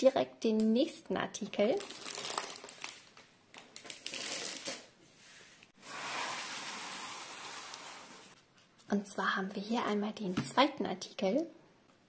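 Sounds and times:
packaging clicking and rustling: 1.8s - 4.9s.

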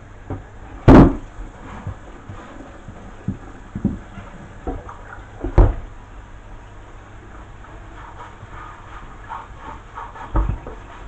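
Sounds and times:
brush scrubbing: 1.4s - 5.2s, 7.2s - 11.0s.

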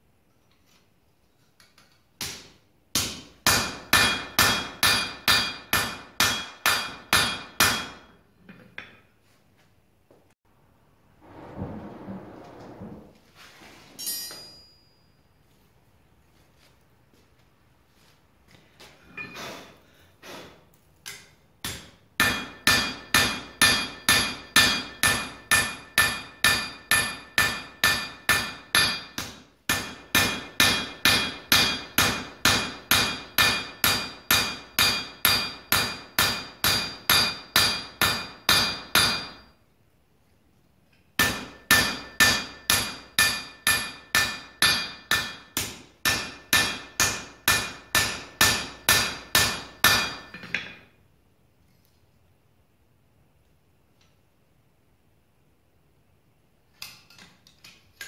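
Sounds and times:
hammer ringing on anvil: 3.5s - 8.1s, 14.0s - 15.2s, 22.2s - 39.5s, 41.2s - 50.8s.

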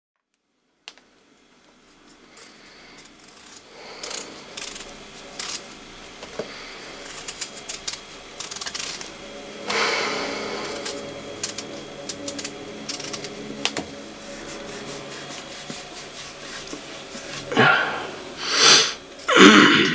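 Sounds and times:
knife scraping potato skin: 1.9s - 9.2s, 9.8s - 17.5s.

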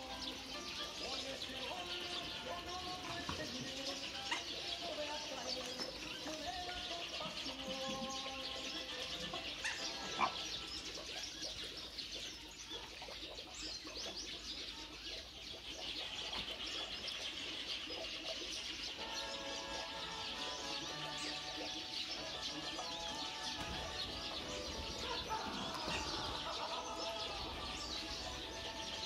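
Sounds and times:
birds chirping: 0.0s - 29.0s.

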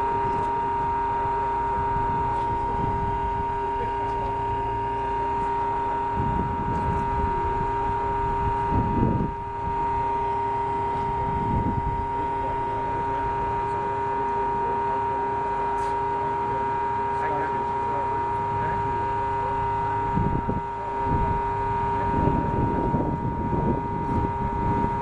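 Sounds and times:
steady mechanical whine: 0.0s - 25.0s
wind buffeting microphone: 1.8s - 3.7s, 5.4s - 10.1s, 10.8s - 12.6s, 20.0s - 25.0s.

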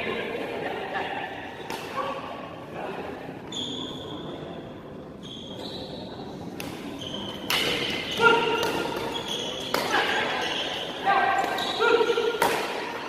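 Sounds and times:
shoe squeaks: 3.5s - 4.6s, 5.2s - 6.2s, 6.9s - 12.2s
badminton racket hitting shuttlecock: 6.6s - 10.7s.

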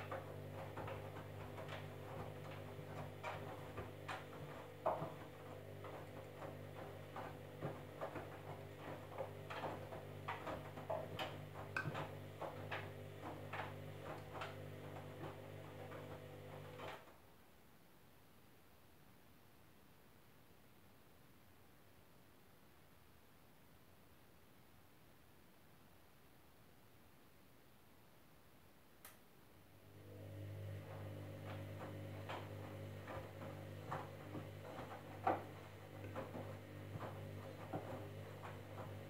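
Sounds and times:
clicks and knocks from tumbling drum: 0.0s - 17.1s, 30.2s - 39.0s
washing machine motor hum: 0.0s - 17.1s, 29.7s - 39.0s.

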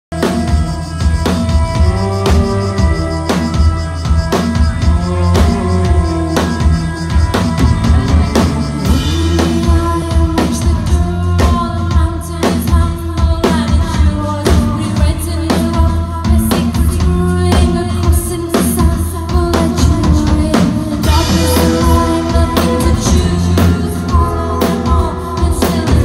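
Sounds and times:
rock band playing: 0.1s - 26.0s
woman singing: 4.8s - 7.2s, 8.0s - 26.0s.

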